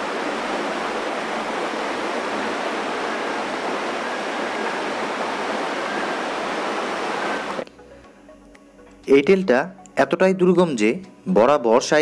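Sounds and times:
stream water rushing: 0:00.0 - 0:07.6.

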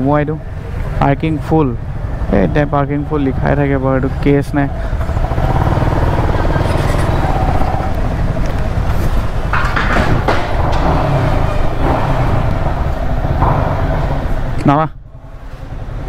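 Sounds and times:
motorcycle engine thrumming: 0:04.0 - 0:14.8.

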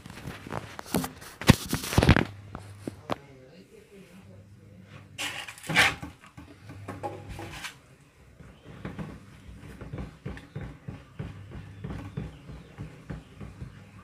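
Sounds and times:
plastic containers rustling: 0:00.0 - 0:03.2, 0:05.0 - 0:07.8
low steady hum: 0:00.0 - 0:14.0.

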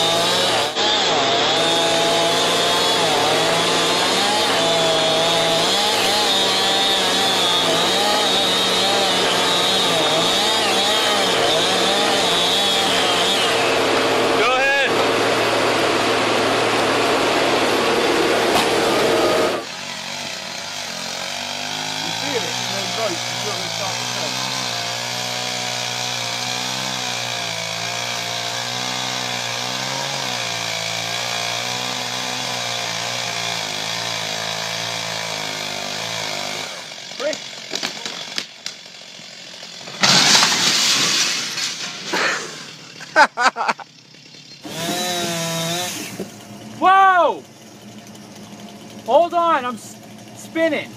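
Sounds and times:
chainsaw cutting wood: 0:00.0 - 0:50.9
glass breaking crash: 0:40.0 - 0:42.8.

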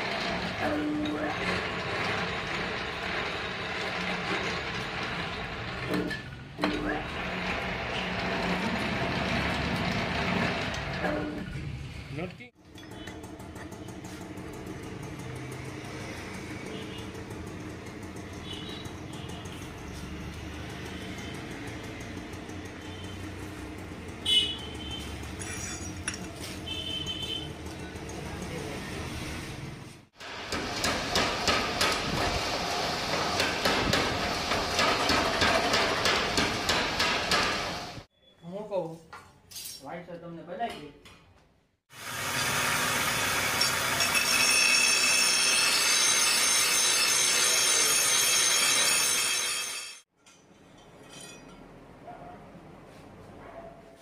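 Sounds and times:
steel bar grinding on wheel: 0:00.0 - 0:11.6
steel rings clinking: 0:25.4 - 0:26.4, 0:50.2 - 0:51.9.

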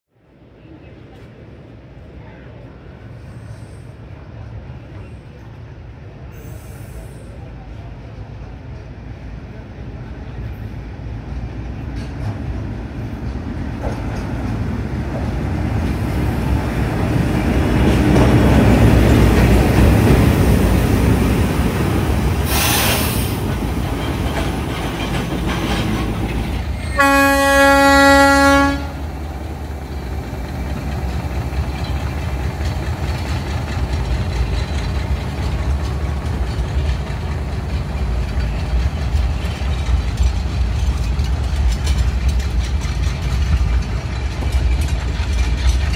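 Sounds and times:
diesel locomotive engine passing: 0:00.3 - 0:45.9
wagons rolling on rails: 0:13.2 - 0:27.1, 0:29.2 - 0:45.9
train horn blast: 0:26.8 - 0:29.1.

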